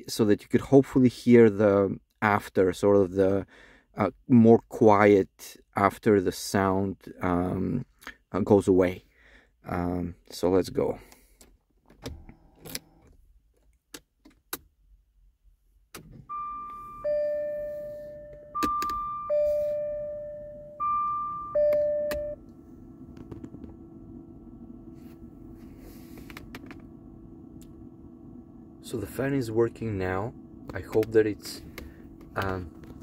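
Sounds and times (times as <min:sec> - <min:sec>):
car warning chime: 0:16.2 - 0:23.1
fan humming: 0:16.3 - 0:33.0
key clicking in ignition: 0:18.3 - 0:19.1.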